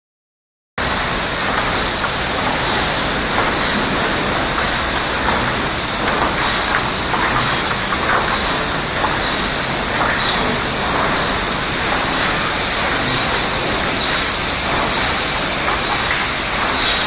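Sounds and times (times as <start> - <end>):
chain conveyors mechanical din: 1.2 - 17.0.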